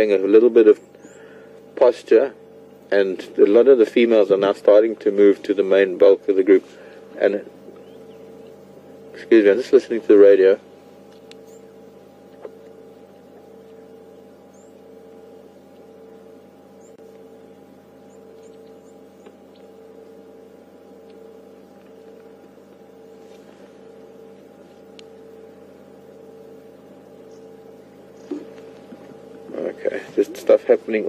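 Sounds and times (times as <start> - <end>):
low pulsing hum: 0.0 - 31.0
faint high bird chirps: 0.7 - 1.3, 7.7 - 8.7, 11.1 - 12.0, 13.6 - 20.0, 27.0 - 28.3.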